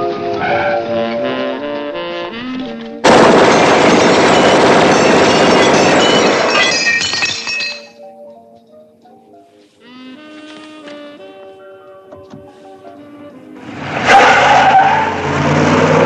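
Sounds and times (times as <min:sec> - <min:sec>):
automatic gunfire: 0:03.0 - 0:06.6
glass shattering: 0:03.4 - 0:08.0.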